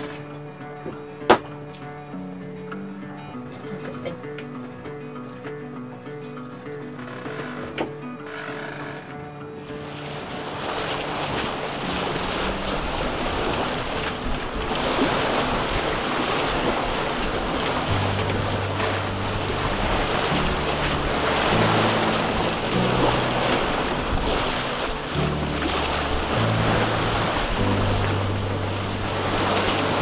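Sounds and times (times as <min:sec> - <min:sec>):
water rushing along hull: 0:00.0 - 0:02.8, 0:07.0 - 0:30.0
wind buffeting microphone: 0:09.7 - 0:30.0
music bass notes: 0:11.2 - 0:30.0.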